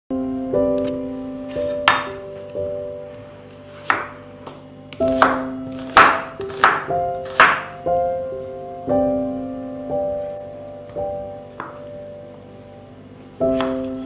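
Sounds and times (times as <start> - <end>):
gentle piano music: 0.1 - 14.0
knife chopping on wooden board: 3.8 - 4.2, 5.0 - 7.7, 13.6 - 13.9.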